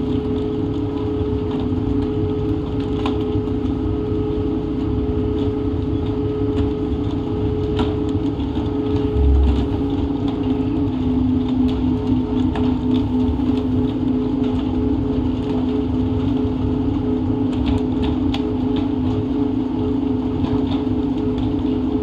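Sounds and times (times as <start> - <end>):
boat engine humming: 8.7 - 11.1.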